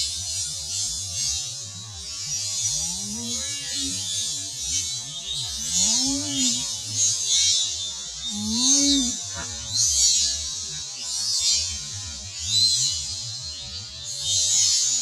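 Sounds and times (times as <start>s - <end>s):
insects droning: 2.7s - 4.4s.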